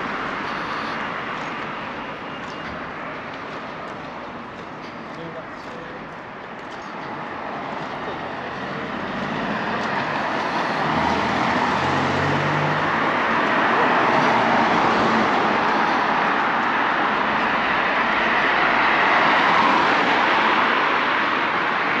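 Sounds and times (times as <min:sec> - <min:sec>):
road traffic noise: 0:00.0 - 0:22.0
car driving past: 0:08.8 - 0:16.2.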